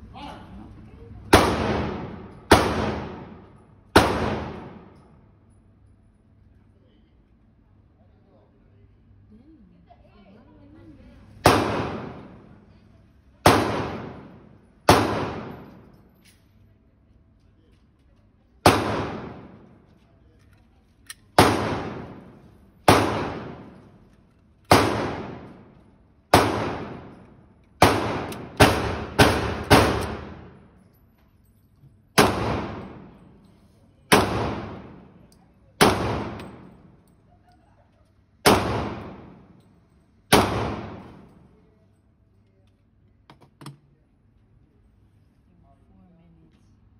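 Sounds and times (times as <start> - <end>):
pistol shots echoing indoors: 1.2 - 5.6, 11.2 - 12.8, 13.4 - 16.5, 18.5 - 42.0.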